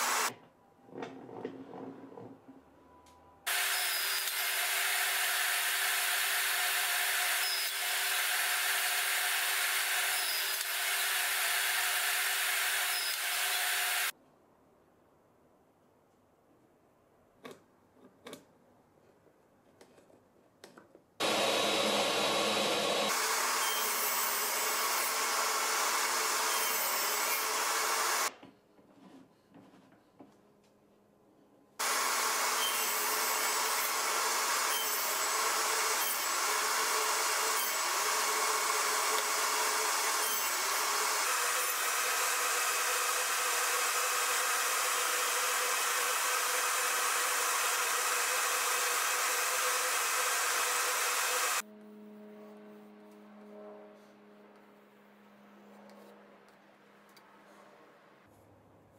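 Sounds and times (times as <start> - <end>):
table saw ripping wood: 3.5 - 14.1, 31.8 - 51.6.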